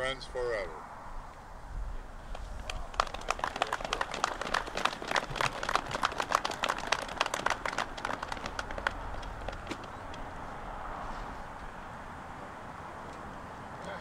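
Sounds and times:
crowd applauding: 2.3s - 10.3s.

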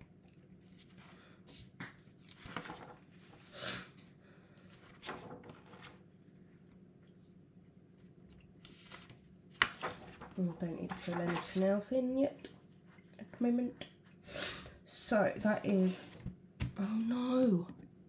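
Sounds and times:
paper rustling: 2.0s - 3.4s, 4.8s - 6.0s, 8.6s - 12.0s.

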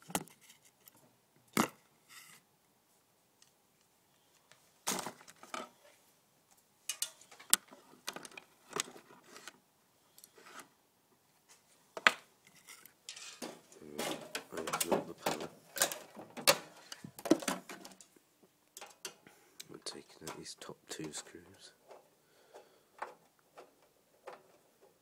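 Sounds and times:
rattles and rustles: 12.5s - 18.1s.

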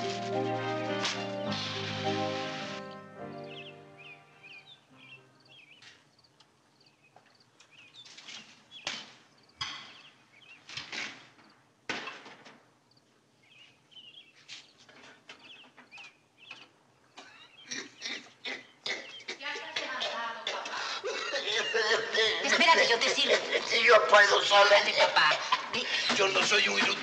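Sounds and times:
small birds chirping faintly: 2.2s - 11.6s, 12.8s - 20.4s.

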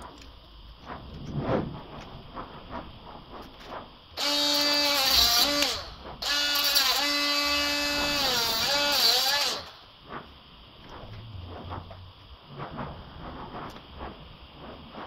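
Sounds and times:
cordless power tool motor whining: 4.2s - 9.8s.

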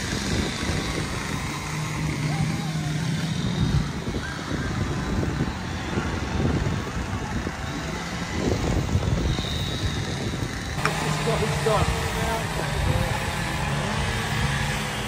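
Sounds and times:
low engine-like hum: 0.0s - 15.0s.

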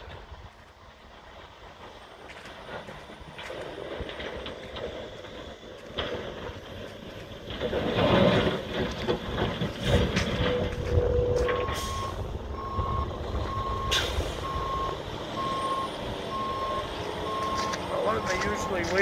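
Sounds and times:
diesel engine rumbling: 0.0s - 19.0s
backup alarm beeping: 10.4s - 19.0s.

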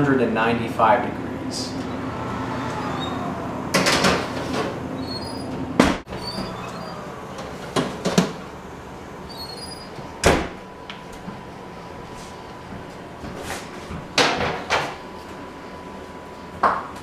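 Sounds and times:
oven door opening and shutting: 1.7s - 11.5s, 12.8s - 15.1s.

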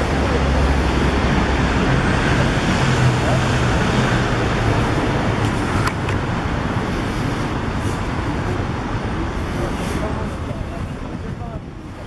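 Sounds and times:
cars passing: 0.0s - 12.0s.

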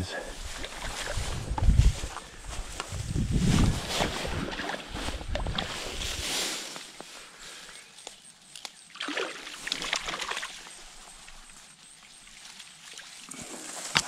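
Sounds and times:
water splashing and sloshing: 0.4s - 1.9s, 3.5s - 6.4s, 8.9s - 14.0s
stream trickling: 8.6s - 14.0s.

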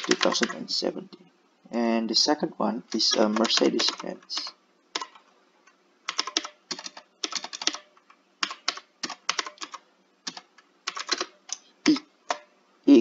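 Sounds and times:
keyboard typing: 0.0s - 0.7s, 2.9s - 5.3s, 6.1s - 12.5s.

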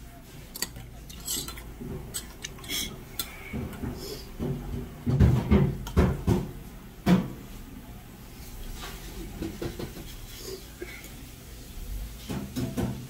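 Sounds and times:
spoon and chopsticks clinking on bowl: 0.5s - 3.4s.

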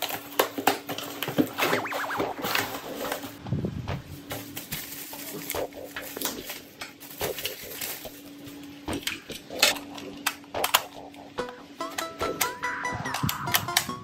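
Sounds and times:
plastic packaging rustling: 2.3s - 3.4s, 4.0s - 10.2s.

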